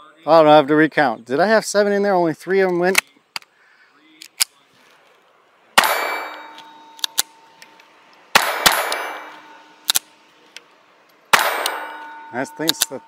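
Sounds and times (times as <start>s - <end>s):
pistol shots cracking: 5.8s - 7.4s, 8.3s - 10.2s, 11.3s - 13.0s
steel target ringing: 5.8s - 7.6s, 8.4s - 9.8s, 11.3s - 13.0s.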